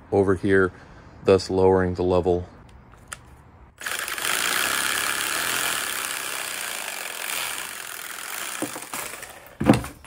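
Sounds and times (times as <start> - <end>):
reciprocating saw cutting plastic: 3.8 - 9.7.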